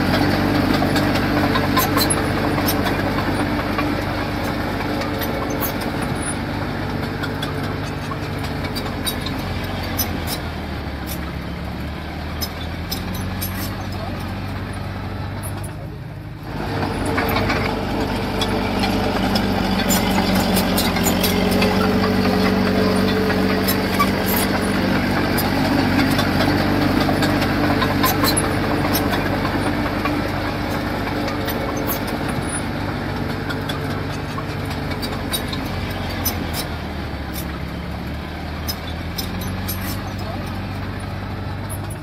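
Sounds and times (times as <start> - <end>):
heavy diesel machinery engine: 0.0 - 42.0.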